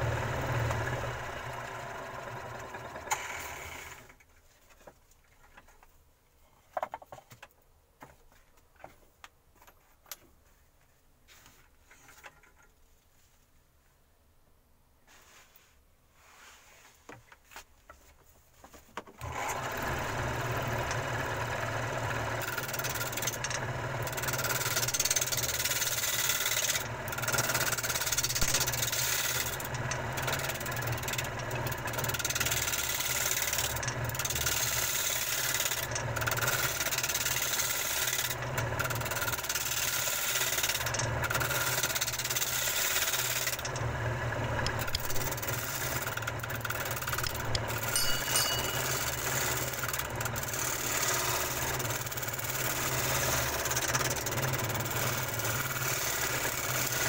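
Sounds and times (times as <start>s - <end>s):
woodworking machine cutting wood: 0.0s - 4.2s, 19.2s - 57.0s.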